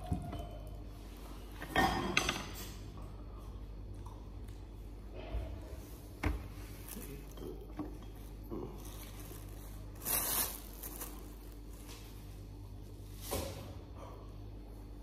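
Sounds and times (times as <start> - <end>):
plastic bags crinkling: 6.7 - 12.2.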